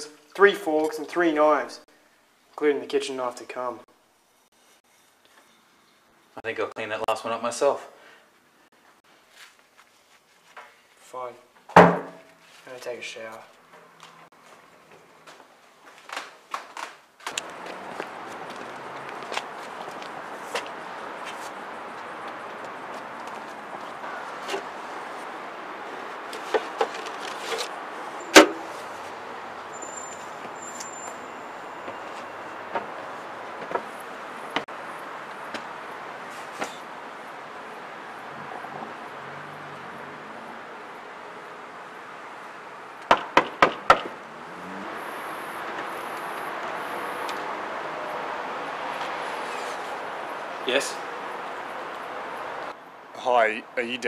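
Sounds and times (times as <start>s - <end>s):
outdoor background hiss: 0.0s - 54.0s
metal mailbox lid clack: 28.3s - 28.6s.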